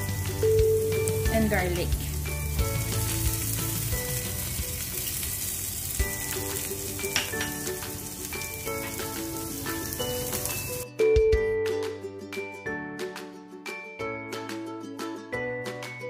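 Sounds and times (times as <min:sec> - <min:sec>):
food sizzling in butter: 0:00.0 - 0:10.8
light background music: 0:00.0 - 0:16.0.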